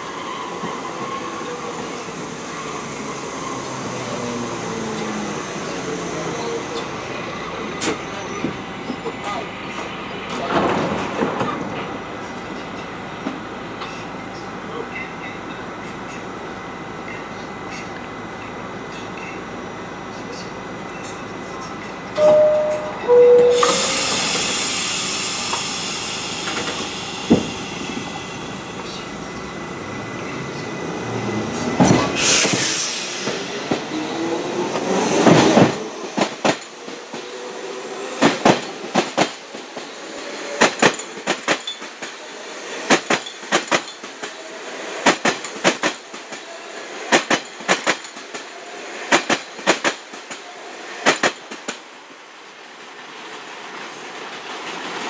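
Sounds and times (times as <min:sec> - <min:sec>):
short chime tone: 0:22.2 - 0:24.0
train motors whining: 0:23.5 - 0:34.8
train wheels clacking over rail joint: 0:42.9 - 0:44.4, 0:47.1 - 0:48.5.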